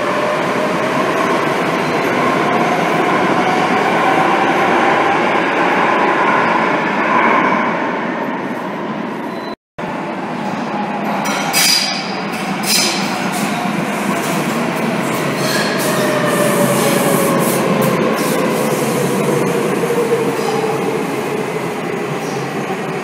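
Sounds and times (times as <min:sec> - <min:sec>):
metro train rumbling: 0:00.0 - 0:23.0
train wheel squeals: 0:09.2 - 0:09.6, 0:12.6 - 0:13.6, 0:15.1 - 0:17.6.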